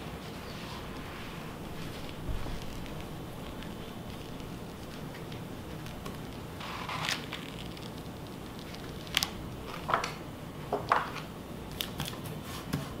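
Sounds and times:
plastic sheet and paper rustling: 0:00.3 - 0:10.2.

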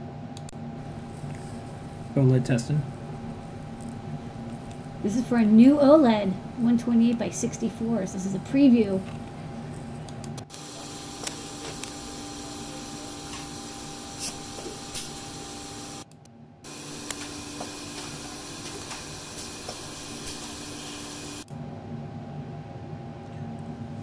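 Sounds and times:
machine mechanical hum: 0:00.0 - 0:24.0
high hiss: 0:16.7 - 0:21.4.

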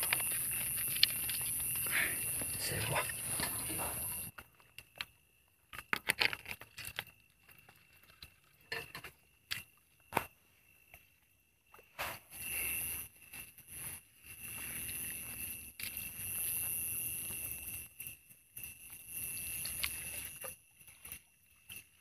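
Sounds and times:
snail shells clicking: 0:00.0 - 0:03.5, 0:05.7 - 0:08.3, 0:19.3 - 0:20.5.

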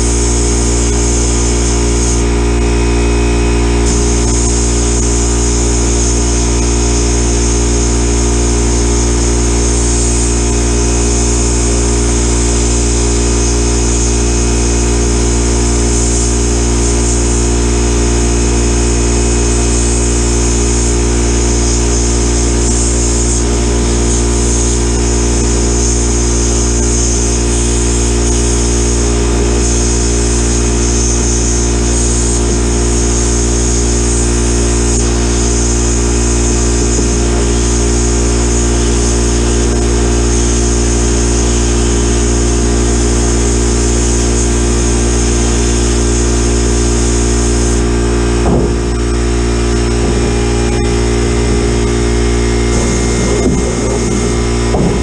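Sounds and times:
low machine hum: 0:00.0 - 0:40.3, 0:45.0 - 0:55.0
sandblast gun hissing: 0:00.0 - 0:55.0.

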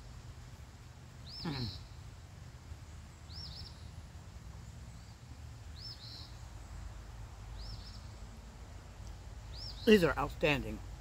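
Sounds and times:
low outdoor rumble: 0:00.0 - 0:11.0
bird calling: 0:01.2 - 0:02.0.

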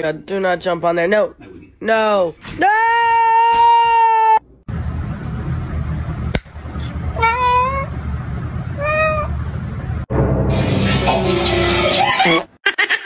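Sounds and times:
cat meowing: 0:07.2 - 0:07.9, 0:08.8 - 0:09.3.

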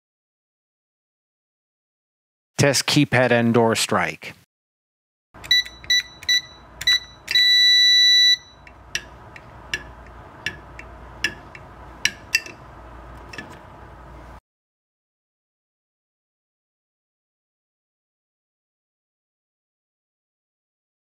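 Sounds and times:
electric strike light clicks: 0:05.4 - 0:07.5
keypad short beeps: 0:05.4 - 0:08.6
long beep: 0:05.5 - 0:08.6.

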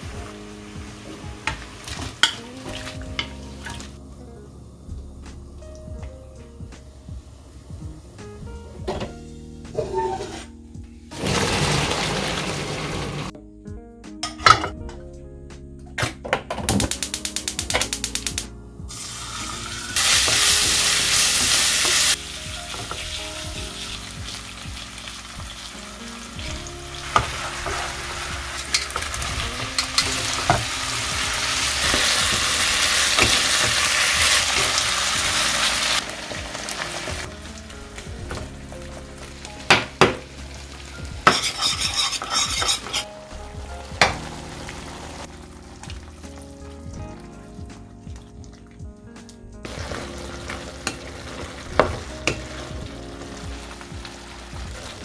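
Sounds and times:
food sizzling in a pan: 0:17.0 - 0:38.0, 0:39.0 - 0:43.1, 0:49.7 - 0:55.0
utensil tapping and scraping: 0:41.2 - 0:43.1.

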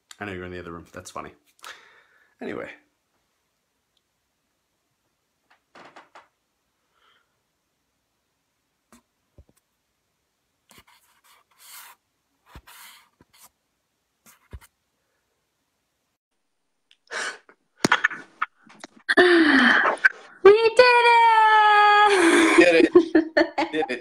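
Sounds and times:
scratchy rustling: 0:10.7 - 0:13.6, 0:14.2 - 0:14.7.

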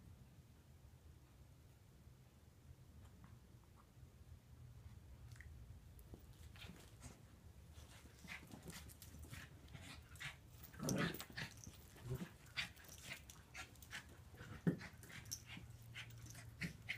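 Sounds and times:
puppies scuffling and mouthing: 0:06.0 - 0:16.9.

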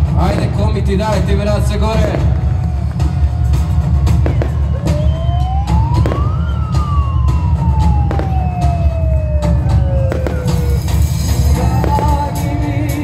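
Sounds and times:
fireworks banging and crackling: 0:00.0 - 0:13.0
siren-like wail: 0:04.2 - 0:12.1.

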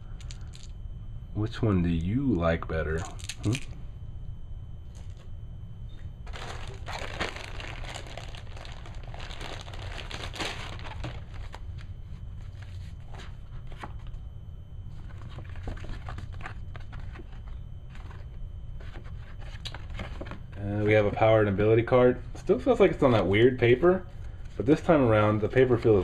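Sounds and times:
packaging crinkling: 0:06.2 - 0:12.9.

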